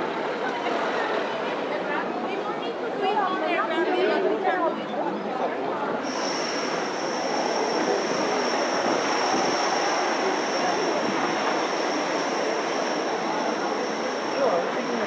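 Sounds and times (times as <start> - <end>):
tram rumbling: 6.0 - 15.0
high-pitched whine: 6.1 - 15.0.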